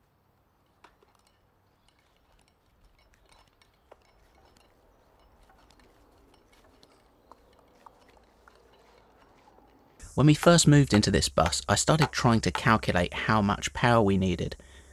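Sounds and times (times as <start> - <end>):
small ticks and clicks: 0.6 - 10.0.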